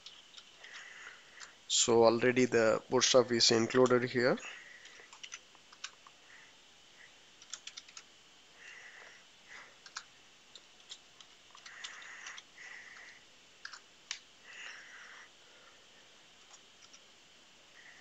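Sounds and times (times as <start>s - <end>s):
keyboard typing: 4.8s - 6.0s, 7.4s - 8.1s, 9.8s - 13.8s.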